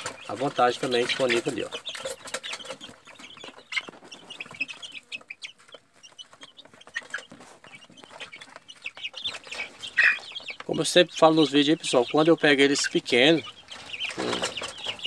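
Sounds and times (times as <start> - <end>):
chicks peeping: 0.0 - 15.0.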